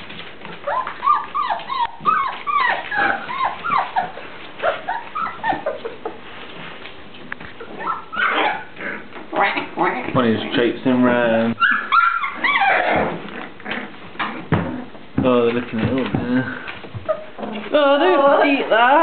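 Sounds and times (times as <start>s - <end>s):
puppies whimpering and yipping: 0.1s - 6.8s, 7.6s - 10.2s, 11.6s - 15.0s, 17.0s - 19.0s.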